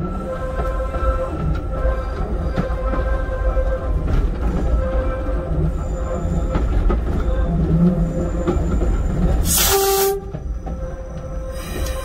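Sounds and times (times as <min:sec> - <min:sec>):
railcar rumbling on track: 0:00.0 - 0:12.0
air hiss: 0:09.4 - 0:10.2.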